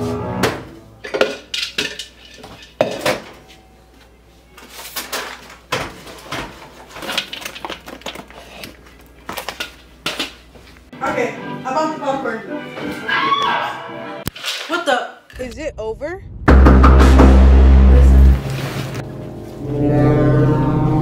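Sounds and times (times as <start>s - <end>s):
dishes clattering: 1.0s - 3.4s.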